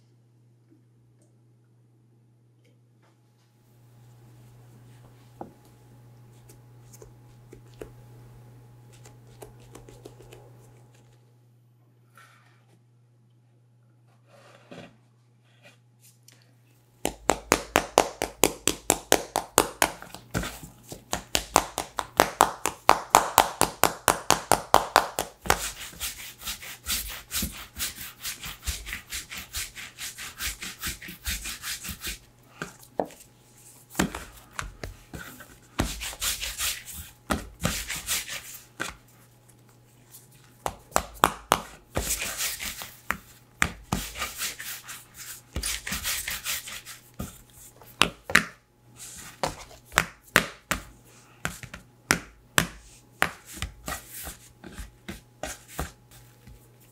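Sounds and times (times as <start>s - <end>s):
hands rolling dough on wood: 4.8s - 8.0s, 8.8s - 11.2s, 17.0s - 56.9s.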